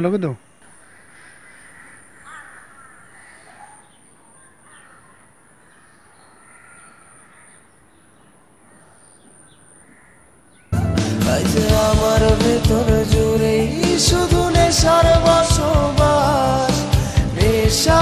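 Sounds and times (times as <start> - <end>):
faint outdoor background noise: 0.0 - 10.8
crows cawing: 0.6 - 10.8.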